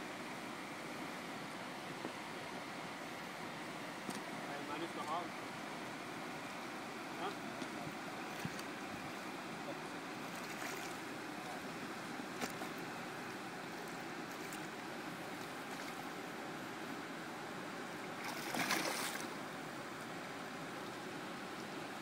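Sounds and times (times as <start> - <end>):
river water rushing: 5.5 - 22.0
fish splashing at surface: 18.2 - 19.3.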